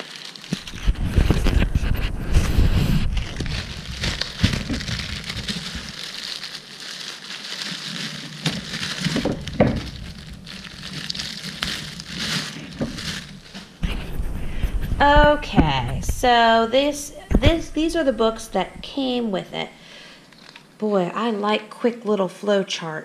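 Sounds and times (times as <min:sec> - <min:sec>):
plastic bag crinkling: 0:00.0 - 0:20.8
paper sliding: 0:11.7 - 0:19.5.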